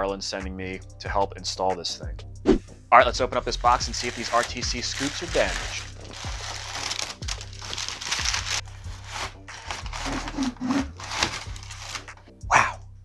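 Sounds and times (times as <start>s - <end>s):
background music: 0.0s - 13.0s
packing paper crinkling: 3.7s - 12.2s.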